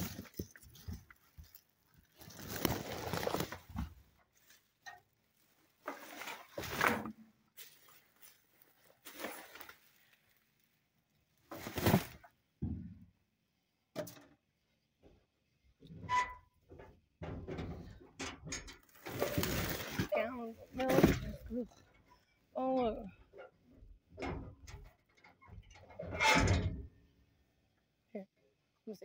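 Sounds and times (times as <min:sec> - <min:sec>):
cardboard boxes shifted: 0:00.0 - 0:04.0, 0:11.5 - 0:12.2
plastic bags rustling: 0:00.0 - 0:04.7, 0:07.6 - 0:10.6, 0:18.9 - 0:21.5.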